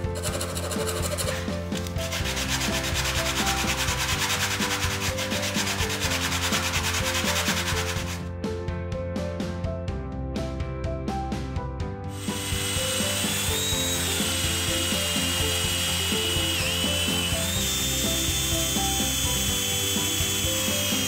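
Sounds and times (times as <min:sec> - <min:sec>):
sanding block rasping on wood: 0:02.0 - 0:08.2.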